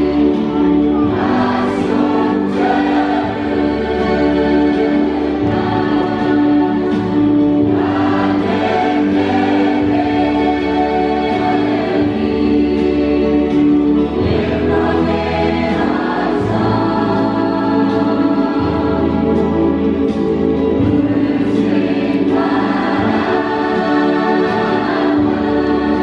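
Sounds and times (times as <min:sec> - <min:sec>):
choir singing in harmony: 0:00.0 - 0:26.0.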